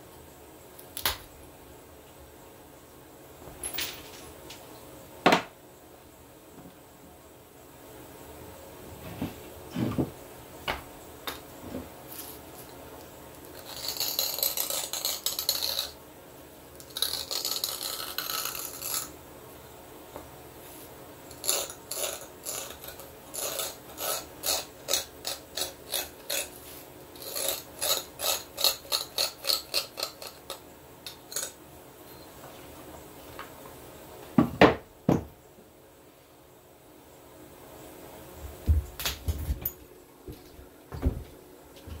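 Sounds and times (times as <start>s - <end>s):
copper tool scraping stone: 13.5s - 16.0s, 16.8s - 19.1s, 21.3s - 31.6s
rhythmic tool strokes on stone: 13.5s - 16.0s, 16.8s - 19.2s, 21.3s - 31.6s.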